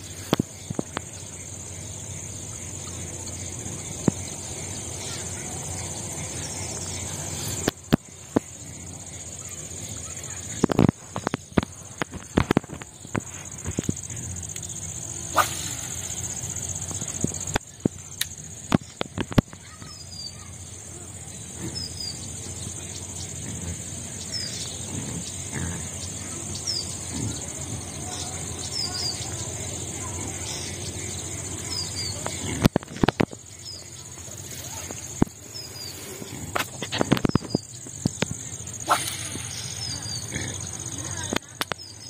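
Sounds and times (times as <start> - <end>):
bird chirps: 0.0 - 42.0
insect drone: 0.0 - 42.0
sharp clicks: 16.9 - 19.6.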